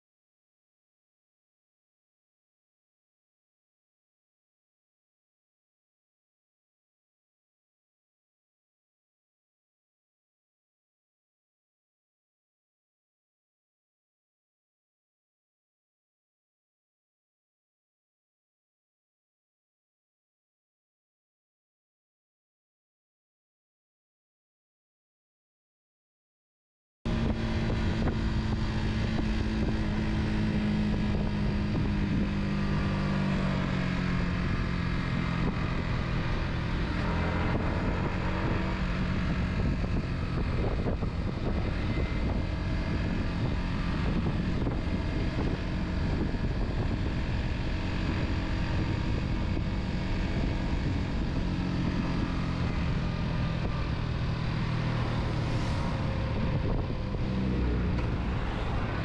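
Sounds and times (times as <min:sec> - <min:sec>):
car engine running: 0:27.1 - 0:59.0
tyre and wind noise: 0:27.1 - 0:59.0.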